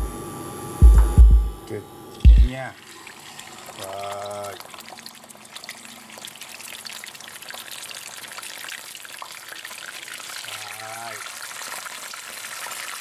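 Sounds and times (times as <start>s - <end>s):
chicken frying in hot oil: 2.8s - 13.0s.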